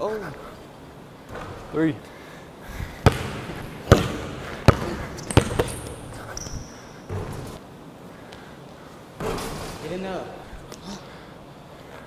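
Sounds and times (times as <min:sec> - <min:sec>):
basketball bouncing on hardwood floor: 0:03.0 - 0:07.6.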